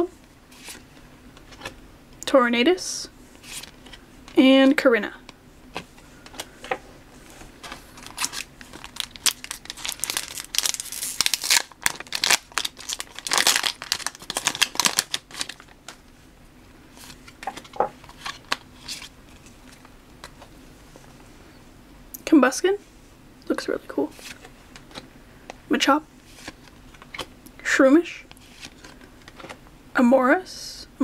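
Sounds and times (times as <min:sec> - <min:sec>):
foil pack crinkling and tearing: 0:07.7 - 0:16.0.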